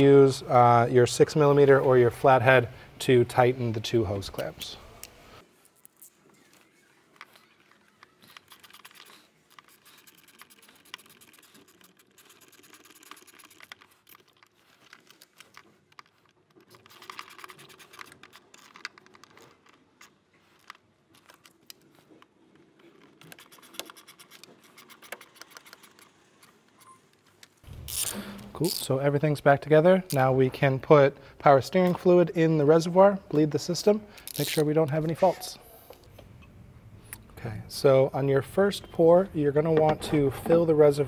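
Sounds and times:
hand tool clicking and scratching: 0:07.3 - 0:26.5.

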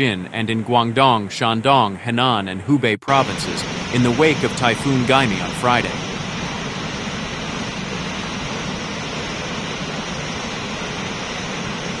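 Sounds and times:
rushing hiss of water: 0:03.1 - 0:12.0.

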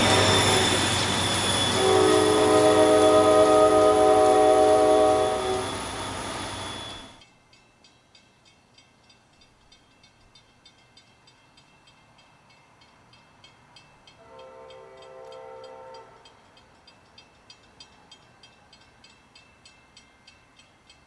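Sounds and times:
train horn blast: 0:00.0 - 0:01.0, 0:01.7 - 0:07.2, 0:14.2 - 0:16.4.

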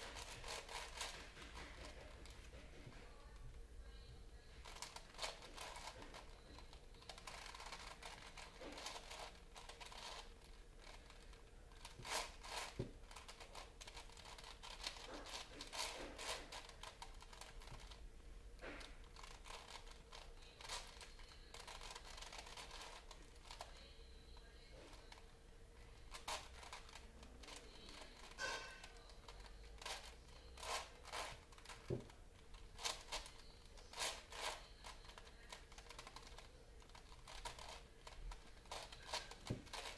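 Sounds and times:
puzzle cube clicking as twisted: 0:04.6 - 0:18.0, 0:19.1 - 0:23.7, 0:29.4 - 0:31.9, 0:32.5 - 0:39.9.

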